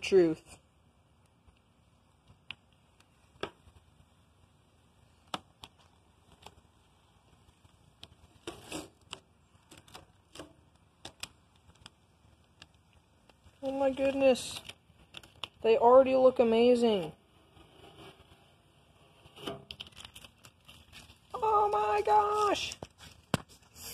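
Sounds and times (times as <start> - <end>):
stiff paper crinkling: 7.6 - 15.6, 19.6 - 23.9
paper rustle: 13.6 - 15.6, 19.4 - 23.9.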